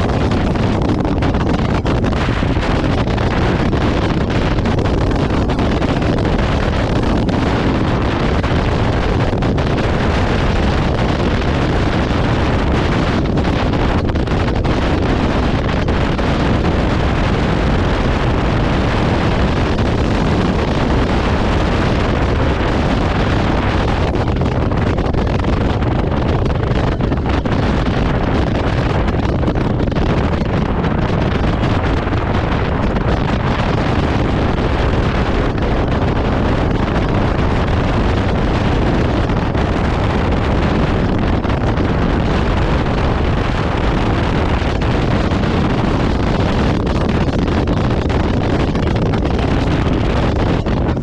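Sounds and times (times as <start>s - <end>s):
wind noise on microphone: 0.0s - 51.0s.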